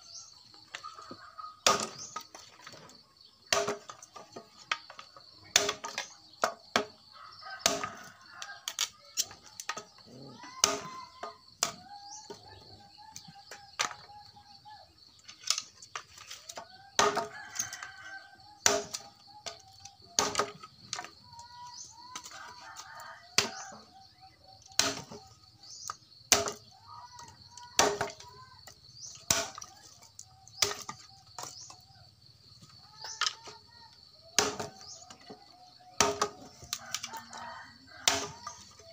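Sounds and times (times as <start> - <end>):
chickens clucking: 0.0 - 3.6
rooster crowing: 7.1 - 8.7, 16.8 - 18.5, 22.2 - 24.0, 36.6 - 38.9.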